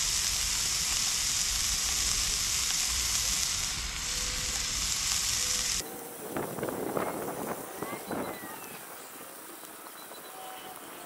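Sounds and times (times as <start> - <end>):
fish frying in oil: 0.0 - 8.5.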